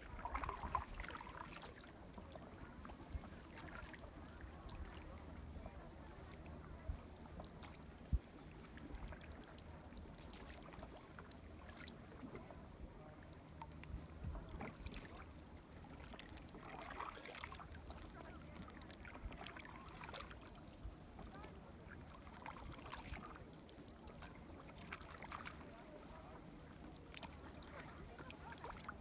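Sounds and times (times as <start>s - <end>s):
canoe paddle dipping in water: 0.0s - 29.0s
water moving against hull: 0.0s - 29.0s.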